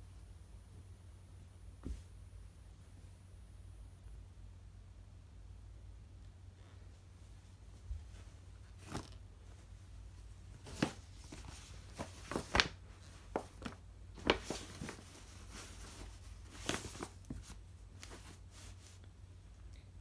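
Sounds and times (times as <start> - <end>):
cloth rags rustling into paper bag: 7.7 - 19.0.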